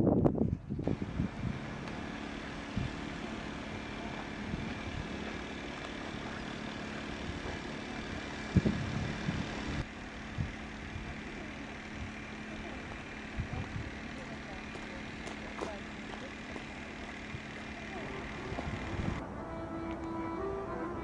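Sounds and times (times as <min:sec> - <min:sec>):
distant engines humming: 0:00.6 - 0:21.0.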